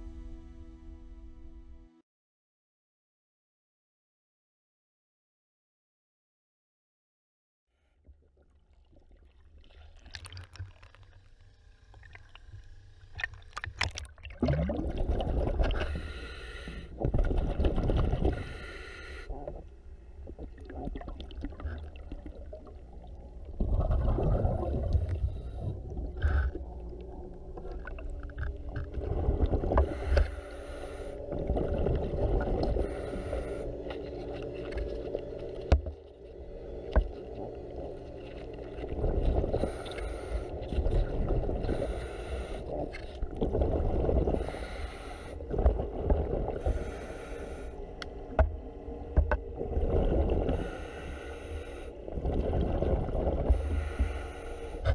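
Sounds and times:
regulator inhale hiss: 0:15.8 - 0:17.0, 0:18.2 - 0:19.3, 0:29.8 - 0:31.3, 0:32.7 - 0:34.2, 0:39.6 - 0:40.7, 0:41.7 - 0:42.9, 0:44.4 - 0:45.5, 0:46.6 - 0:48.0, 0:50.5 - 0:52.0, 0:53.5 - 0:54.9.

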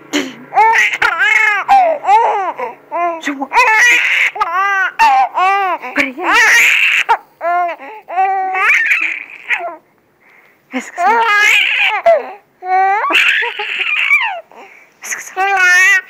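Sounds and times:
baby laughing: 0:00.5 - 0:09.8, 0:11.0 - 0:16.0.

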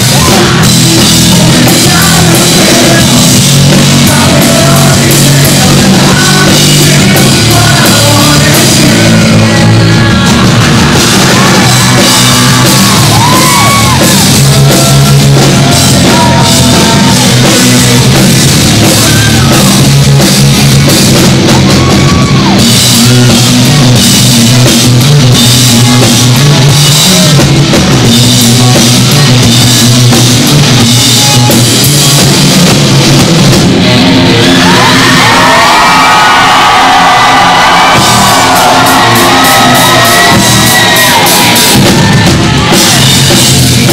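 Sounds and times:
bass guitar: 0:00.0 - 0:43.9
distorted electric guitar: 0:00.0 - 0:43.9
drum kit: 0:00.0 - 0:43.9.

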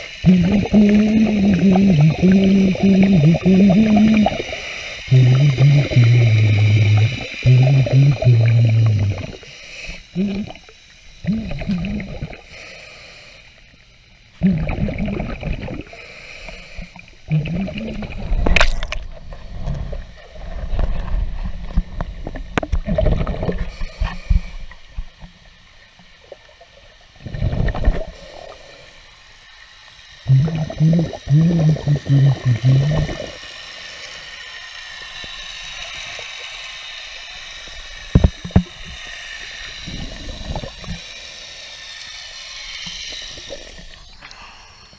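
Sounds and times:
low hums: 0:00.0 - 0:12.7, 0:13.4 - 0:26.1, 0:27.1 - 0:34.2
underwater gurgling: 0:00.0 - 0:44.9
underwater hiss: 0:00.0 - 0:44.9.

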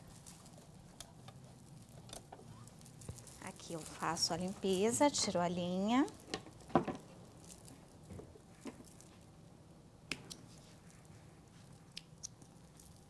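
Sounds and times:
fabric rustling: 0:00.0 - 0:06.2.

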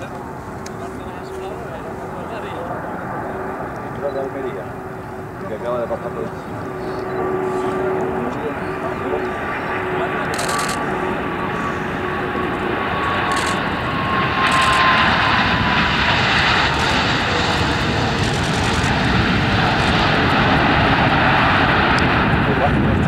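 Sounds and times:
jet engine noise with whine: 0:00.0 - 0:23.0.

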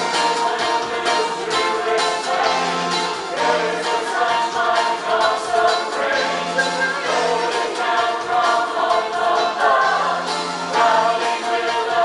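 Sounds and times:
mixed choir singing: 0:00.0 - 0:12.0.

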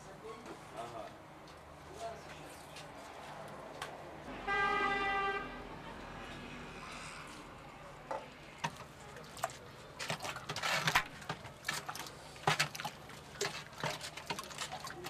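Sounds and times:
stick stirring thick wet slurry: 0:08.4 - 0:15.0.

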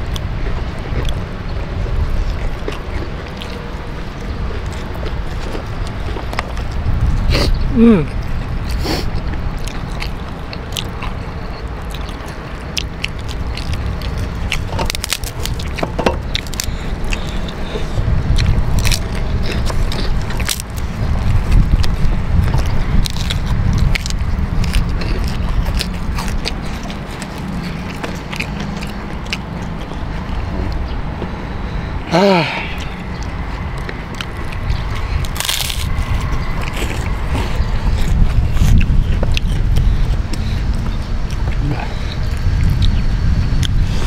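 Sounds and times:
crackers crunching and chewing: 0:00.0 - 0:44.0
steady low rumble: 0:00.0 - 0:44.0
sharp crackles: 0:08.8 - 0:30.3, 0:34.2 - 0:40.6.

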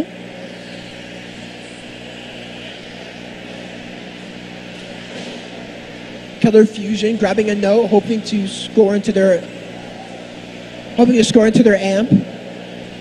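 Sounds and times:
pitched hum: 0:00.0 - 0:13.0.

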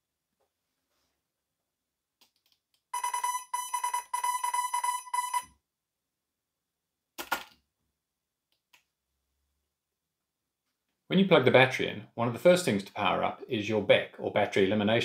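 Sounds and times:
electronic beeps: 0:03.0 - 0:05.5.

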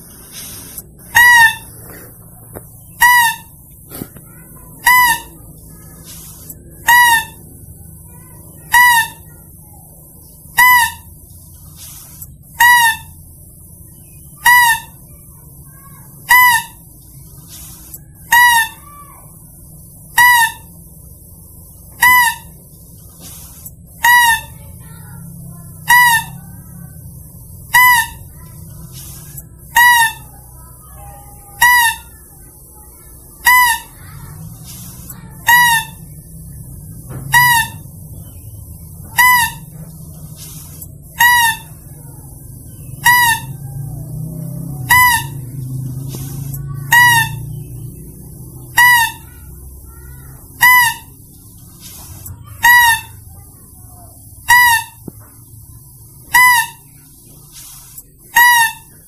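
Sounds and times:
high pitched squeak call: 0:00.0 - 0:01.8, 0:02.8 - 0:13.3, 0:14.0 - 0:20.8, 0:21.9 - 0:59.0.

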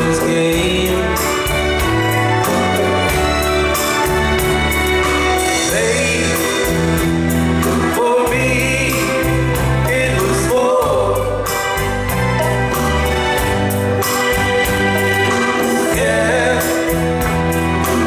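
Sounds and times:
man singing with vibrato: 0:00.0 - 0:04.0, 0:05.2 - 0:12.1, 0:15.4 - 0:18.0
drums: 0:00.0 - 0:18.0
electric guitar: 0:00.0 - 0:18.0.

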